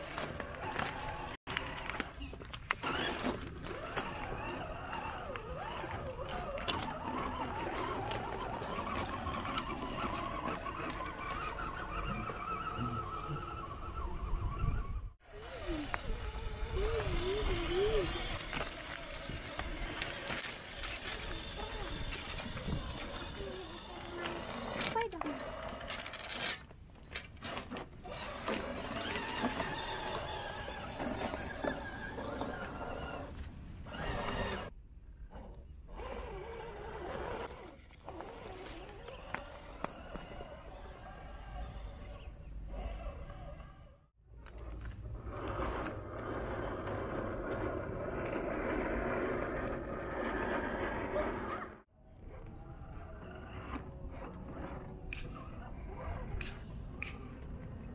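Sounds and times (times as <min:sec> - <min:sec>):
stones clicking under tyres: 0:00.0 - 0:11.7, 0:18.1 - 0:27.4
electric motor whining: 0:00.0 - 0:26.6, 0:28.0 - 0:57.8
stones clattering under tyres: 0:18.2 - 0:28.0.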